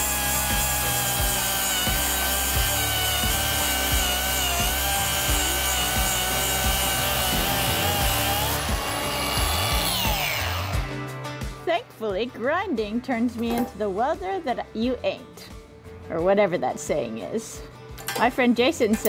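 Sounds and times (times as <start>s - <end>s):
angle grinder grinding metal: 0.0s - 11.2s.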